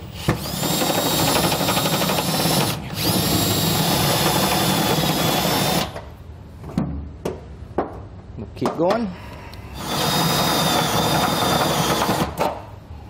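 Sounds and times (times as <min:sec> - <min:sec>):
drill boring through steel: 0:00.0 - 0:06.0, 0:09.8 - 0:12.3.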